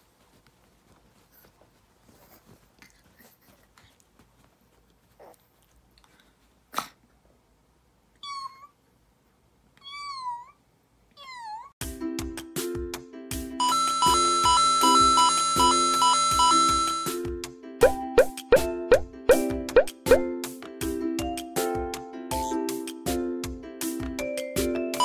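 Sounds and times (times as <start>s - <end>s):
music with chiming tones: 24.2s - 25.0s.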